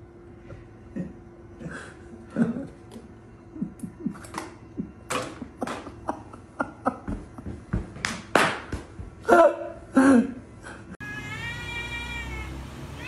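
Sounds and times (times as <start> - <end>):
cat call: 11.0 - 13.0.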